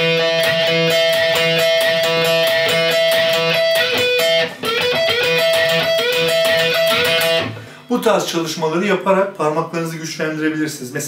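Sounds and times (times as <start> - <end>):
electric guitar blues-rock bends: 0.0 - 7.9.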